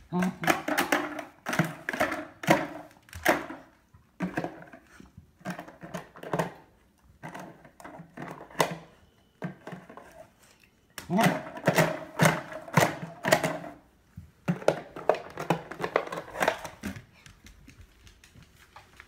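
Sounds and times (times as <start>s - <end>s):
dog claws tapping floor: 11.0s - 19.0s.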